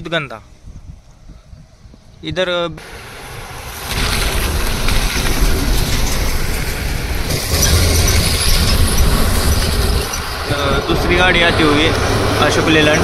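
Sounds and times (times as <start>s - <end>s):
tyre and road noise: 1.9s - 13.0s
truck diesel engine under load: 2.8s - 13.0s.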